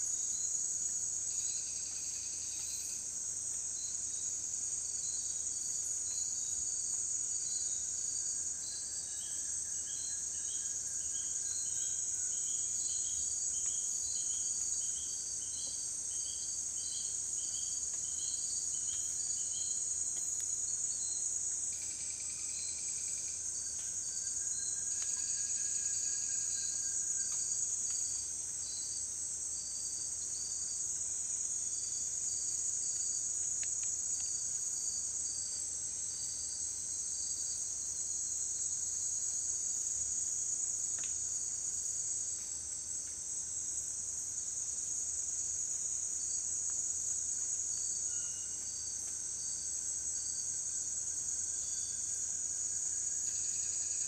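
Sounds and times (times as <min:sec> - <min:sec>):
insect high shrill drone: 0:48.0 - 0:48.8.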